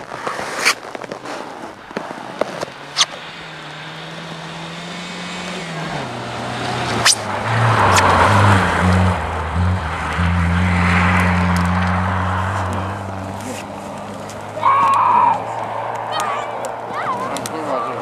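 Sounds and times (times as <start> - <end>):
sharp cracks: 0.0 - 4.3, 6.9 - 8.5, 10.8 - 18.0.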